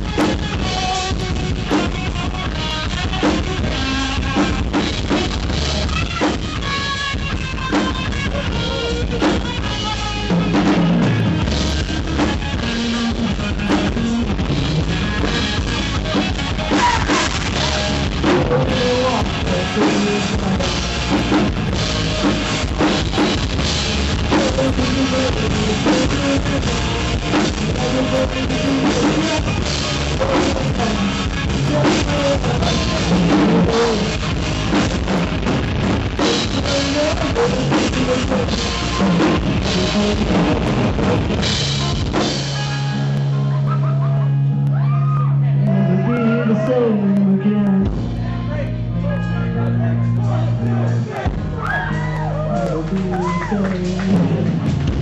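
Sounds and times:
bass drum and cymbal hits: 0:00.0 - 0:43.3
rock band playing: 0:00.0 - 0:55.0.

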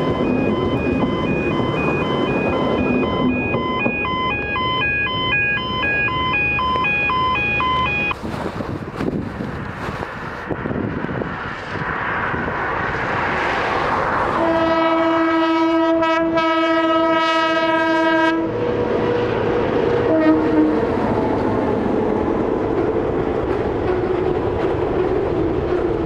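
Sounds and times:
train wheels rolling on rails: 0:00.0 - 0:16.2, 0:18.4 - 0:26.0
diesel locomotive engine: 0:00.0 - 0:26.0
train horn blast: 0:14.4 - 0:18.6, 0:20.0 - 0:21.0.

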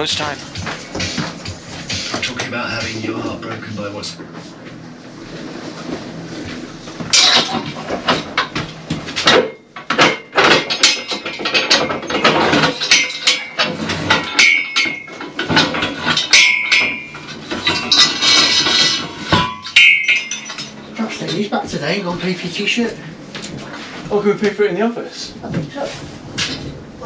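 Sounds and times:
metallic clanks and rattles: 0:00.0 - 0:23.8
ringing metal clanks: 0:07.1 - 0:08.5, 0:09.2 - 0:21.4.

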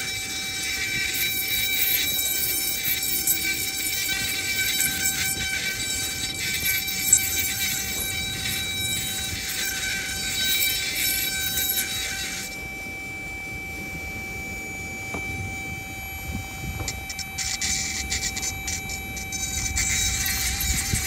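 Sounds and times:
rotary tool grinding stone: 0:00.0 - 0:12.8, 0:16.5 - 0:21.0
faint steady whine: 0:00.0 - 0:21.0.

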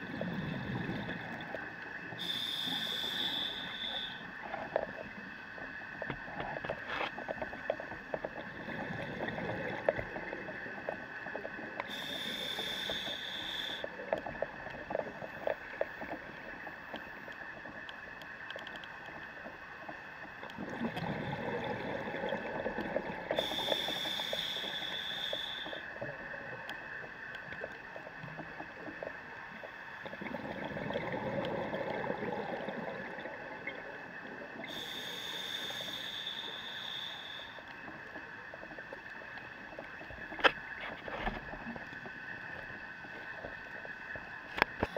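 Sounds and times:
exhaled bubbles underwater: 0:00.0 - 0:05.2, 0:07.4 - 0:13.0, 0:20.5 - 0:35.0
faint steady tone: 0:00.0 - 0:44.9
regulator hissing inhale: 0:02.1 - 0:04.5, 0:11.8 - 0:14.0, 0:23.3 - 0:26.0, 0:34.6 - 0:38.2.

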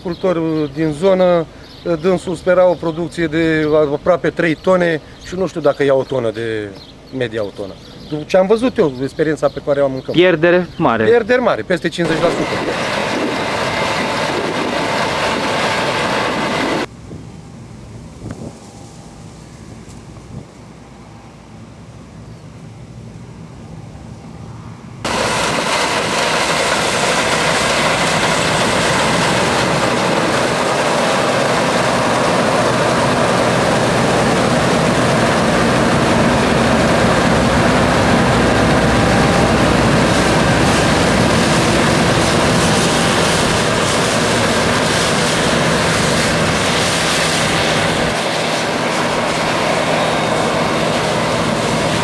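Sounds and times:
combine harvester engine drone: 0:12.0 - 0:52.0.

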